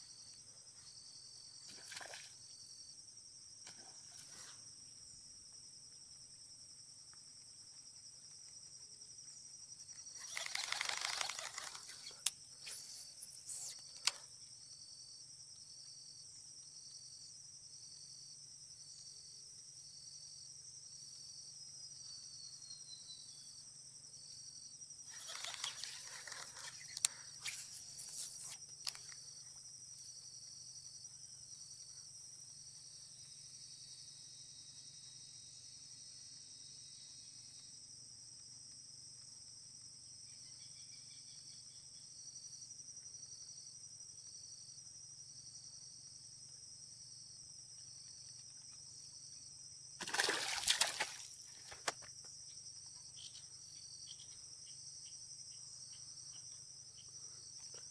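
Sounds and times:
crickets chirring: 0.0s - 57.9s
water splashing: 50.0s - 51.9s.

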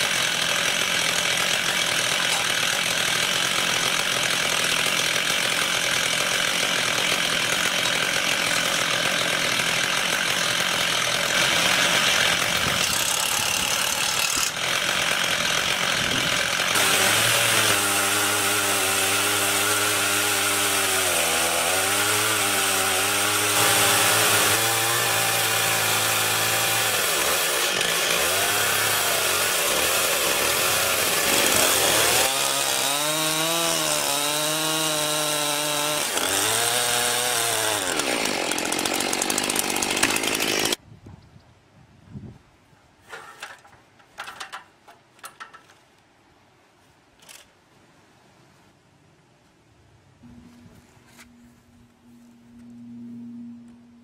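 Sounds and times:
chainsaw cutting log: 0.0s - 40.8s.

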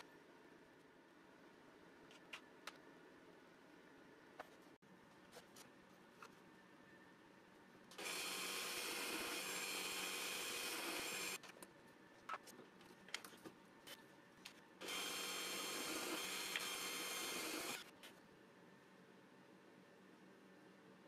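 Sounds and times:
drill press boring wood: 8.0s - 11.4s, 14.8s - 17.8s.

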